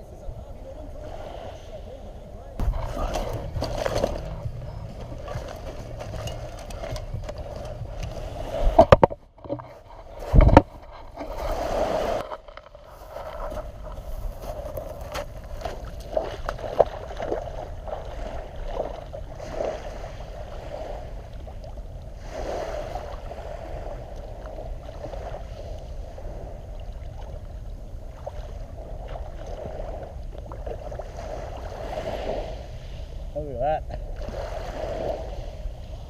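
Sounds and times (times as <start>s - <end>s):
low rumble: 2.5s - 11.6s
seawater sloshing and lapping: 2.6s - 33.1s
small splashes: 15.5s - 20.1s.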